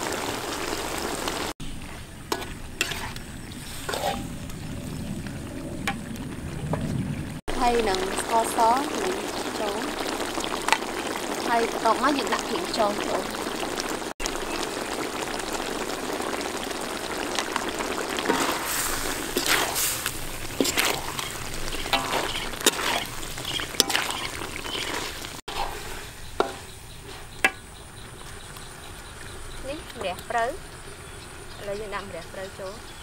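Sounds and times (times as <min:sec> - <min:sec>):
food sizzling in a wok: 0:00.0 - 0:05.3, 0:07.5 - 0:32.9
metal ladle scraping wok: 0:01.6 - 0:05.0, 0:18.2 - 0:27.6.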